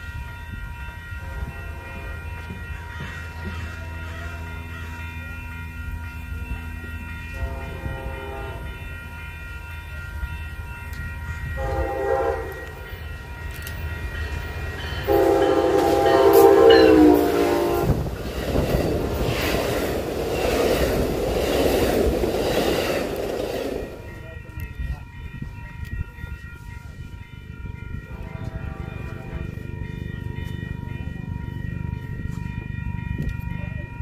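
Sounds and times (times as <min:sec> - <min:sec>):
train rumbling past: 0:00.0 - 0:34.0
train horn blasts: 0:01.2 - 0:05.1, 0:07.2 - 0:09.0, 0:11.4 - 0:13.1, 0:15.0 - 0:18.2, 0:28.0 - 0:29.6.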